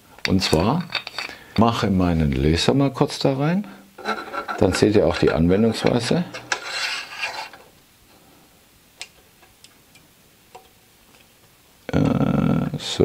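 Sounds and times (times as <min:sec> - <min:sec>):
metal parts rubbing and scraping: 0:00.4 - 0:01.4, 0:04.0 - 0:07.7.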